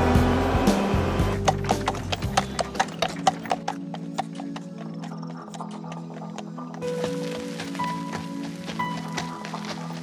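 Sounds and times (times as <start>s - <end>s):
background music with bass line: 0.0s - 3.7s.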